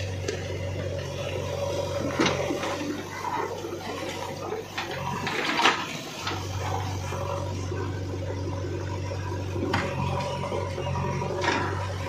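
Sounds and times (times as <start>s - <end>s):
rocks and soil scraping: 0.0s - 8.2s
diesel engine humming: 0.0s - 12.0s.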